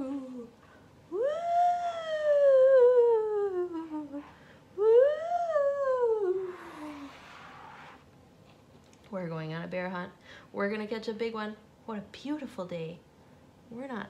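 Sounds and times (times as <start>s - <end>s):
woman imitating howling wind: 1.1s - 7.3s.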